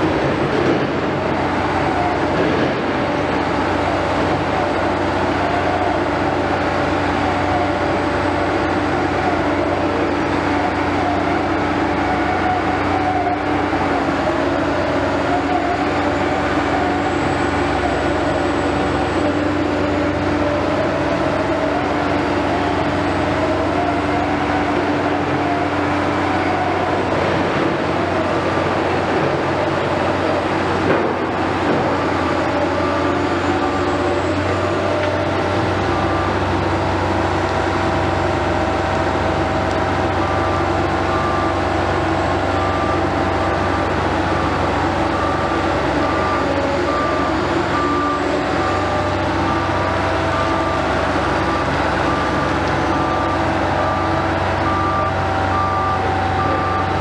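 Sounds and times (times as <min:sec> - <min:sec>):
construction machinery drone: 0:00.0 - 0:57.0.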